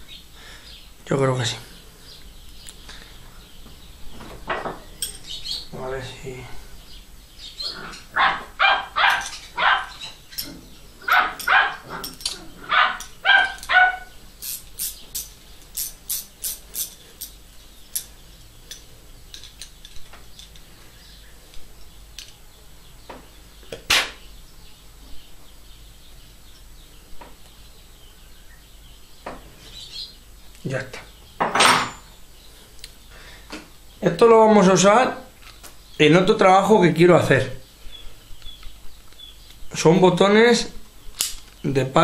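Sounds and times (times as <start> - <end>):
metallic clicks of wrench and nut: 14.4 - 18.1.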